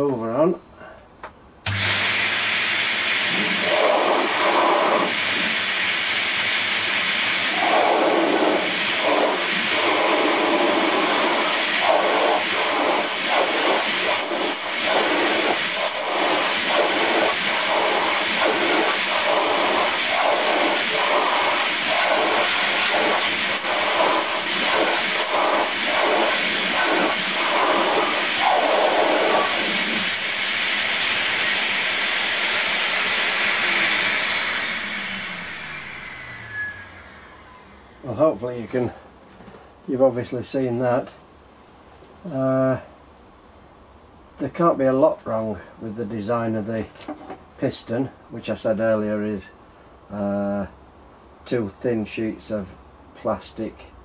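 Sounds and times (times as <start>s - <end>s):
rush of air pulsing: 1.7s - 38.2s
vacuum cleaner running: 1.7s - 38.3s.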